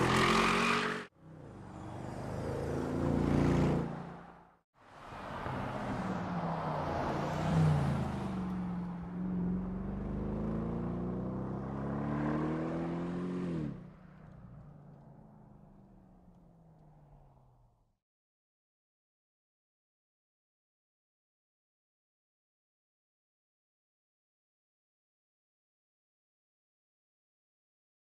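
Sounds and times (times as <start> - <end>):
car engine accelerating: 5.5 - 16.0.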